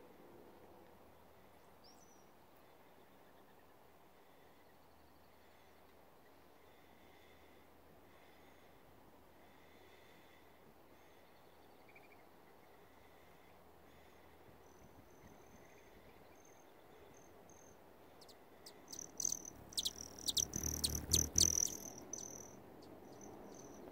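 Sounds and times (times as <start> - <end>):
faint high chirping: 14.7 - 23.9
hummingbird buzzing trill: 18.9 - 22.5
hummingbird wings whirring: 18.9 - 22.5.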